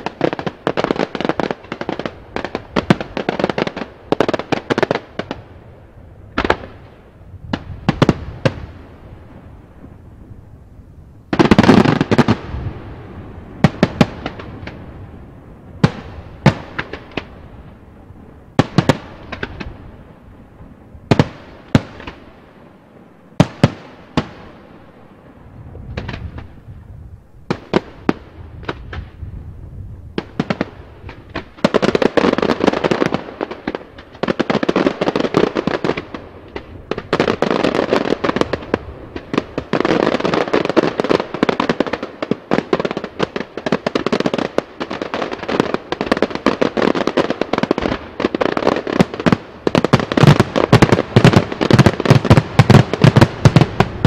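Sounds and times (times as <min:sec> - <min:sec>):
loud firework bangs: 0:11.3 - 0:14.9, 0:15.8 - 0:17.4, 0:30.2 - 0:54.0
rapid-fire firework volleys: 0:30.2 - 0:54.0.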